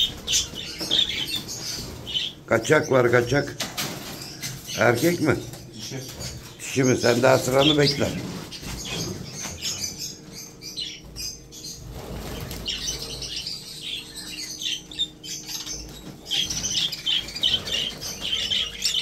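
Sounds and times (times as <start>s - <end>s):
budgerigars chirping and chattering: 0.0s - 19.0s
wings fluttering: 11.1s - 13.5s, 15.7s - 19.0s.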